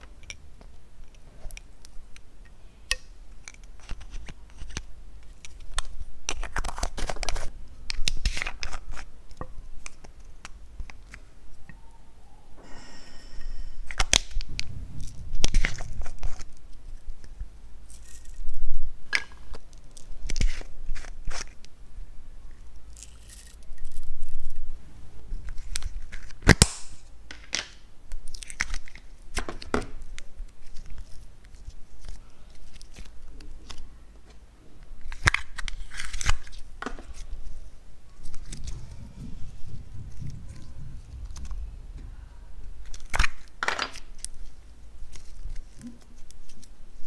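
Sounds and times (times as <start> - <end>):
plastic packaging clicks and crackles: 2.9 - 11.2.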